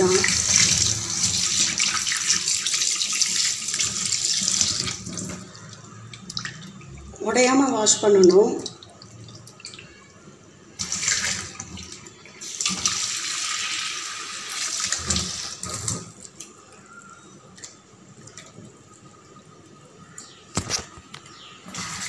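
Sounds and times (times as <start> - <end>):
tap water running into metal bowl: 0.0 - 10.0.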